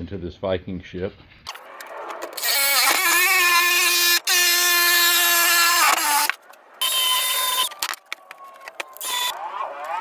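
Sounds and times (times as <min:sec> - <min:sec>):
angle grinder cutting sheet metal: 0:02.3 - 0:07.9, 0:09.0 - 0:09.3.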